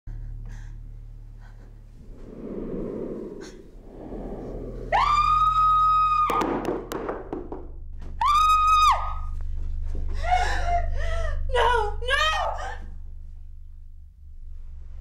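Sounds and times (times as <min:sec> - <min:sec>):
faint low hum: 0:00.1 - 0:06.5.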